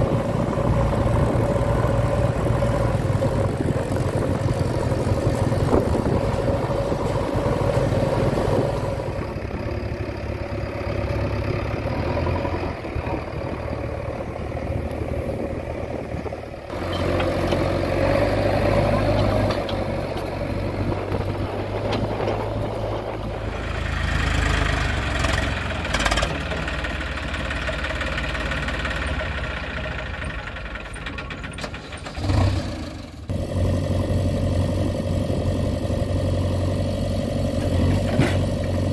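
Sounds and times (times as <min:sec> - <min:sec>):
diesel engines running: 0:00.0 - 0:38.9.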